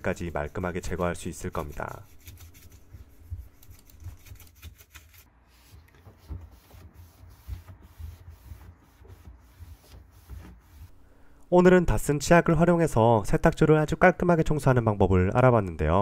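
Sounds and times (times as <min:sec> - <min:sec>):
faint rubbing strokes: 0:00.0 - 0:11.0.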